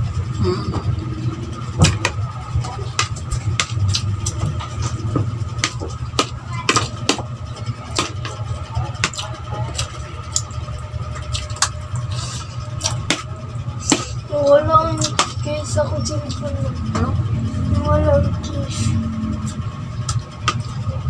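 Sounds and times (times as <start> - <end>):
low hum: 0.0 - 21.0
chewing and lip-smacking: 2.9 - 5.0, 9.0 - 13.3.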